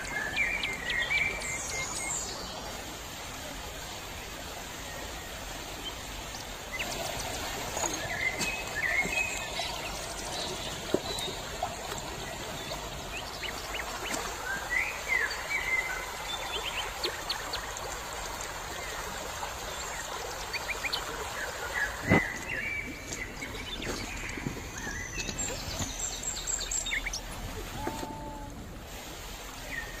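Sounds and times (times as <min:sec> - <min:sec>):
stream running over stones: 0:00.0 - 0:30.0.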